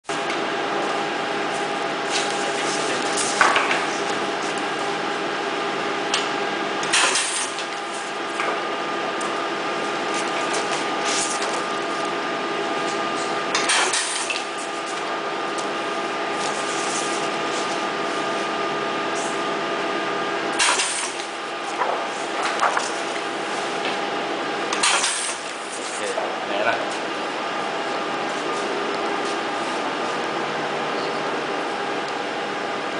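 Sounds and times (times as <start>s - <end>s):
steady mechanical hum: 0.0s - 32.9s.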